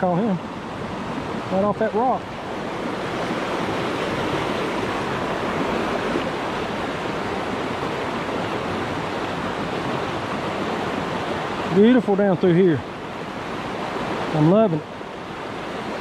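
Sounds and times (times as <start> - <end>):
stream rushing over rocks: 0.0 - 16.0.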